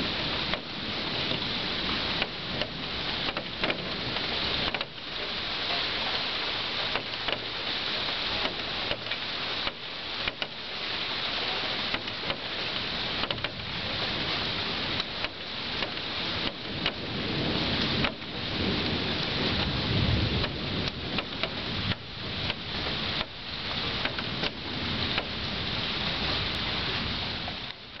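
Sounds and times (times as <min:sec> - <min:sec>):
rain falling: 0:00.0 - 0:28.0
thunder rolling: 0:13.4 - 0:27.6.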